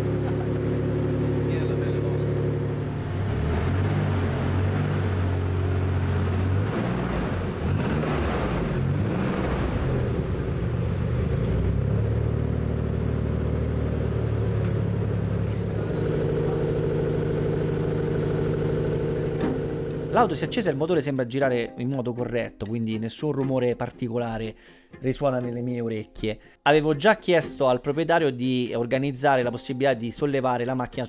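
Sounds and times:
car engine running: 0.0s - 20.6s.

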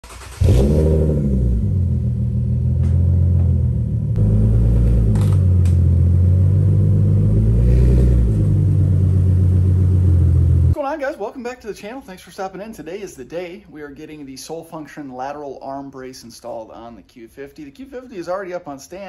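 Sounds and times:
car engine exhaust running: 0.4s - 10.8s.

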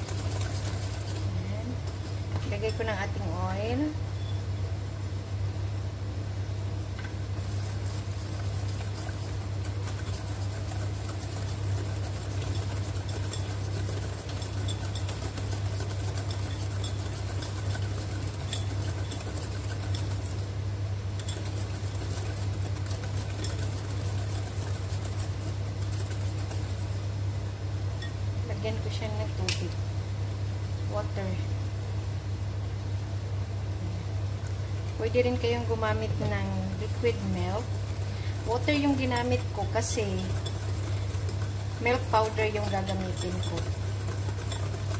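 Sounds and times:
steady low hum: 0.0s - 44.9s
whisk clicking against glass bowl: 7.5s - 20.5s, 21.2s - 26.9s, 36.9s - 44.9s.

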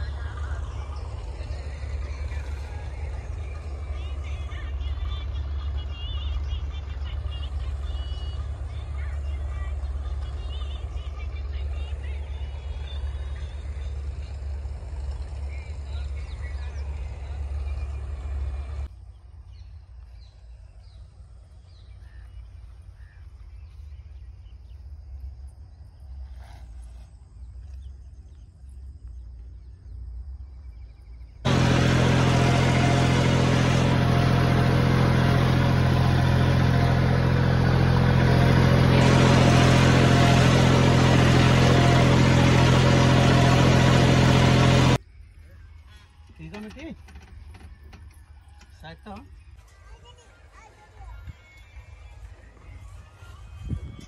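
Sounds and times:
tractor diesel engine: 0.0s - 19.0s, 31.4s - 45.0s, 46.2s - 54.0s.

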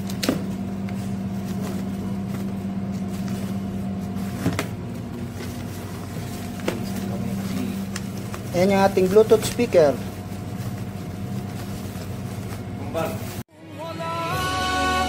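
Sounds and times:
machine-like hum: 0.0s - 13.4s
tissue paper crinkling: 5.1s - 13.4s.

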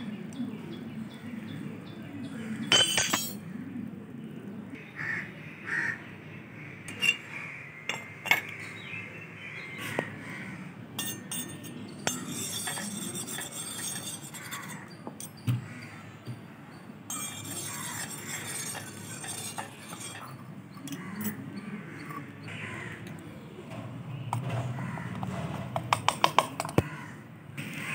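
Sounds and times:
metal utensils clinking: 2.7s - 3.4s, 6.9s - 7.3s, 7.9s - 8.6s, 11.0s - 15.4s, 17.1s - 21.4s.

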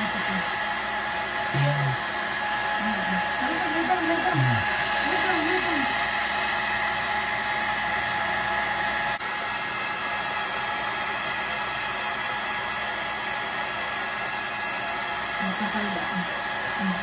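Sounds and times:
hair dryer running: 0.0s - 17.0s.

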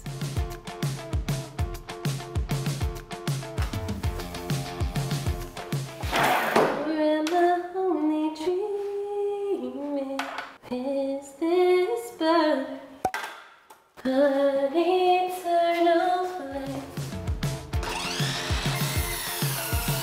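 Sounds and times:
bass and drum beat: 0.0s - 6.2s, 16.6s - 20.0s
pop music with woman singing: 6.7s - 12.7s, 14.0s - 18.4s.

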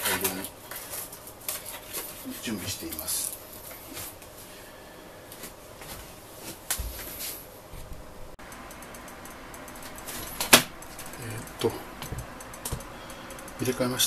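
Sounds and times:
sharp click: 8.4s - 13.9s.

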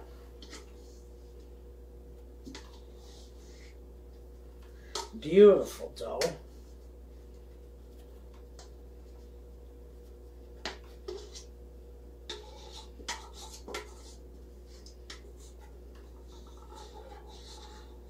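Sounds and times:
steady low hum: 0.0s - 18.0s
scraper scraping a metal bowl: 11.0s - 11.5s, 12.2s - 18.0s.

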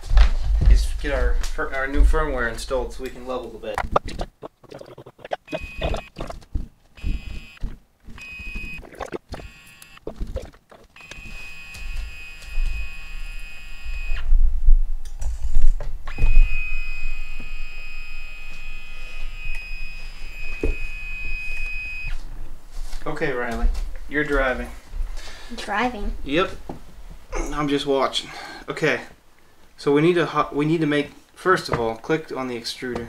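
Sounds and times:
handling clicks and thumps: 3.4s - 11.3s
high-pitched electronic whine: 3.9s - 6.4s, 7.0s - 14.5s, 16.0s - 22.2s.

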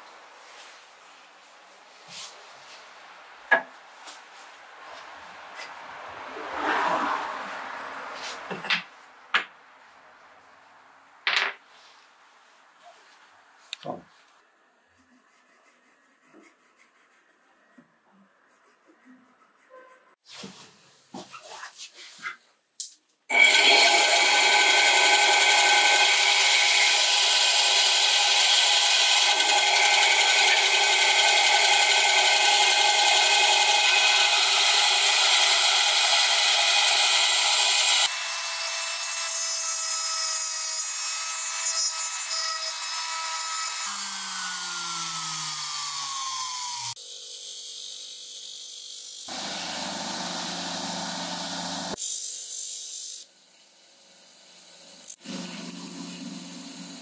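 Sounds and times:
machine winding down: 23.3s - 38.1s
power tool motor whine cutting wood: 23.3s - 39.7s, 41.5s - 47.0s, 49.3s - 52.0s.

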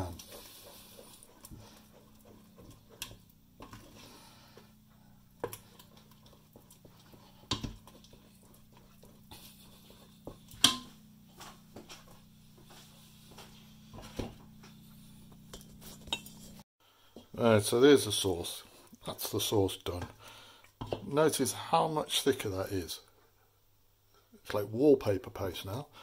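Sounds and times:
wooden spoon stirring thick sauce: 0.0s - 14.3s.

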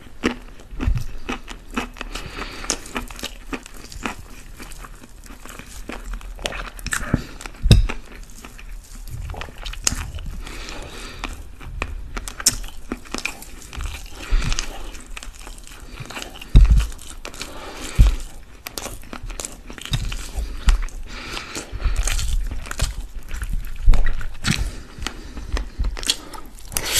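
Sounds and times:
chewing and biting: 0.0s - 26.9s
heavy low thumps: 7.6s - 8.1s, 16.5s - 17.1s.

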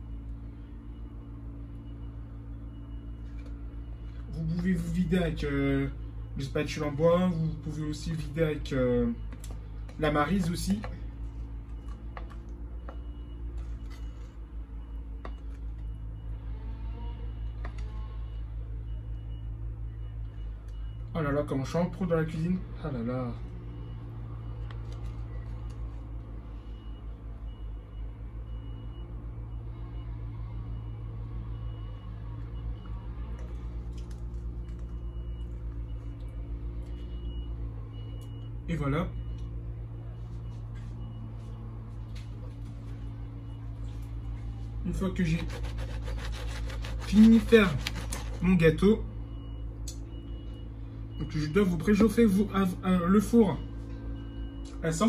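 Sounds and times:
wooden spatula scraping a bowl: 45.3s - 48.4s.

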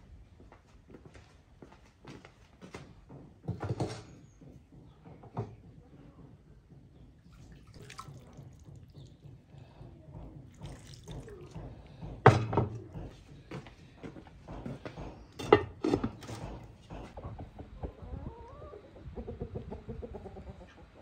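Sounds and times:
water trickling and splashing: 7.2s - 9.8s, 10.4s - 12.0s.

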